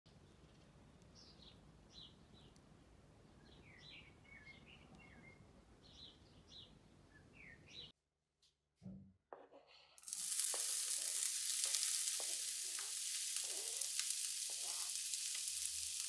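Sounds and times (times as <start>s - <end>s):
faint birds chirping: 0.1s - 8.0s.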